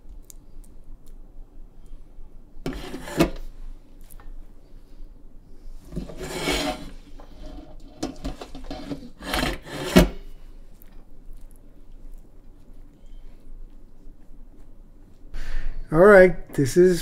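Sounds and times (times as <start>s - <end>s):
utensil scraping cookware: 2.7s - 3.5s, 5.9s - 10.2s.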